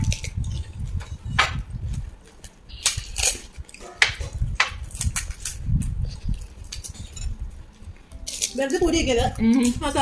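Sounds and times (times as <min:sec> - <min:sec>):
crunching and chewing: 0:00.0 - 0:09.8
crisp shells cracking: 0:02.3 - 0:07.3, 0:08.2 - 0:09.9.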